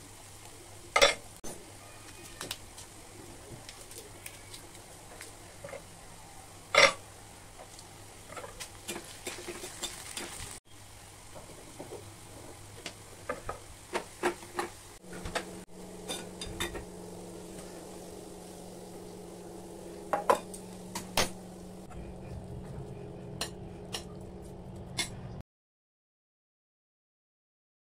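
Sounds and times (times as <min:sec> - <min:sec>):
steady low hum: 0:15.0 - 0:25.4.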